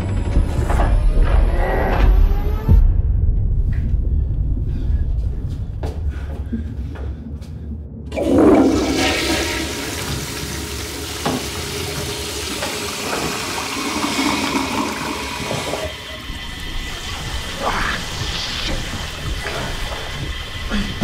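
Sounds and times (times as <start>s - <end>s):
toilet flushing: 8.1s - 21.0s.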